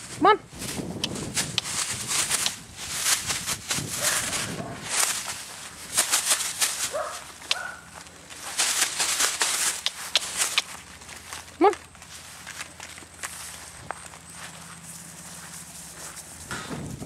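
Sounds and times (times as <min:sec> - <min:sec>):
footsteps on grass and dirt: 0:00.0 - 0:17.0.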